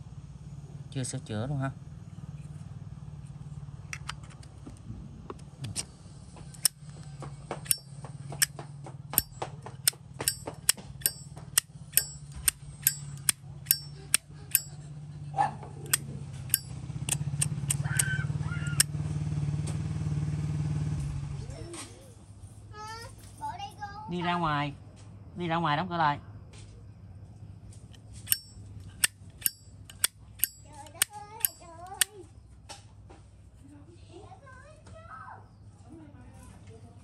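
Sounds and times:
lighter lid clicking open and shut: 7.6s - 7.8s, 10.2s - 14.8s, 15.9s - 17.8s, 28.3s - 32.1s.

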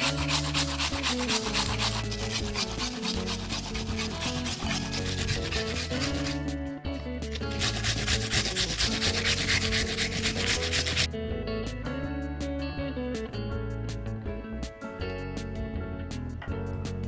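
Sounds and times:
onion rasping on grater: 0.0s - 6.5s, 7.3s - 11.1s
background music: 0.0s - 17.0s.

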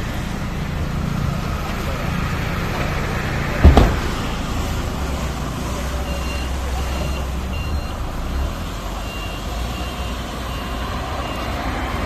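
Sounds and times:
car engine idling: 0.0s - 9.0s
street traffic: 0.0s - 12.0s
loud thump: 3.6s - 4.5s.

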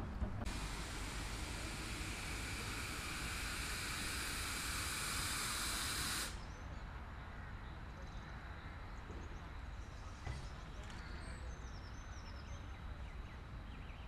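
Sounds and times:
steam locomotive hissing: 0.4s - 6.4s.

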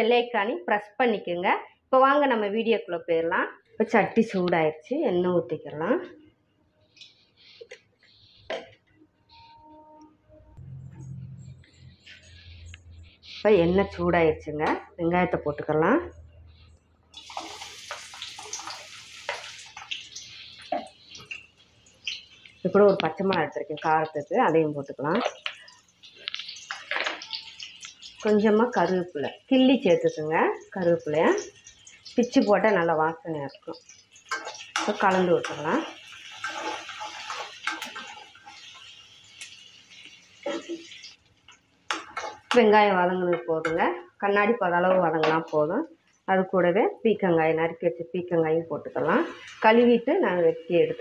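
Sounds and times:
oil popping and crackling: 17.1s - 42.7s
onions sizzling in hot oil: 17.2s - 46.6s, 47.4s - 51.0s
spatula scraping metal pan: 34.2s - 38.9s.

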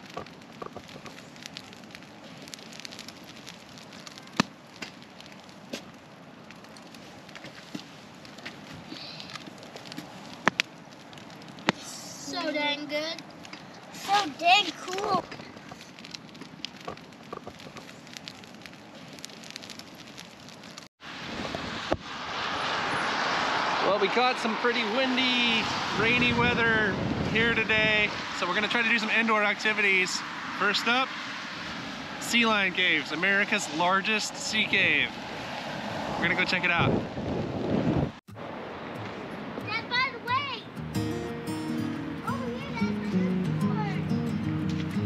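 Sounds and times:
campfire crackling and popping: 0.0s - 45.0s
steady rushing noise: 20.8s - 41.0s.

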